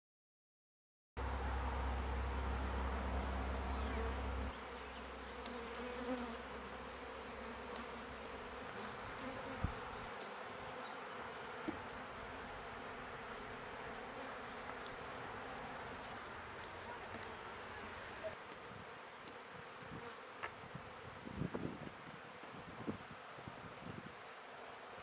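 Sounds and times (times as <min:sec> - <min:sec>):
low rumble: 0:01.2 - 0:04.5
bees buzzing: 0:01.2 - 0:22.9.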